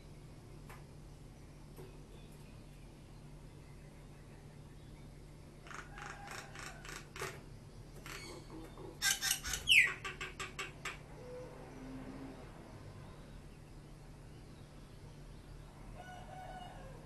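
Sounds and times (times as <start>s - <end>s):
bird harsh chattering calls: 8.0s - 11.4s.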